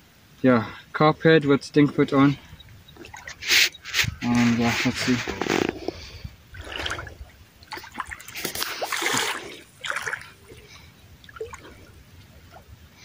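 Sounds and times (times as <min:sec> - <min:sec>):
water splashing: 0:02.5 - 0:12.8.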